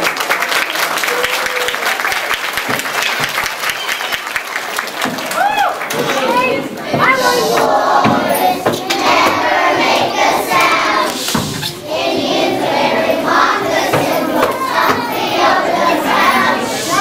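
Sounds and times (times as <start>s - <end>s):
children singing together: 6.3s - 17.0s.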